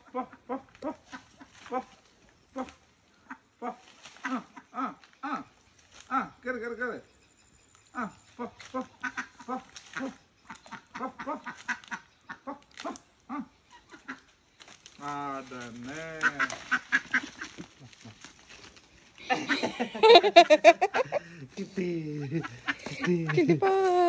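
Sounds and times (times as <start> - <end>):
duck quacking: 2.6 - 5.4, 8.0 - 14.2, 16.1 - 17.6.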